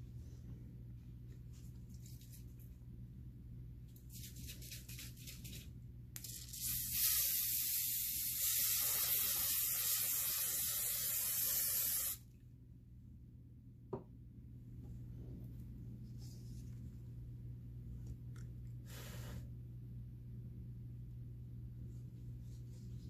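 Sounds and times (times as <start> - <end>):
aerosol can spraying: 6.2 - 12.2.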